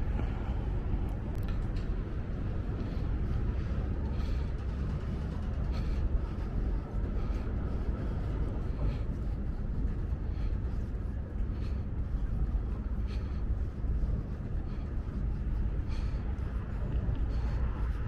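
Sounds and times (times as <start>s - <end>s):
city traffic rumble: 0.0s - 18.0s
faint light ticks: 1.1s - 1.9s.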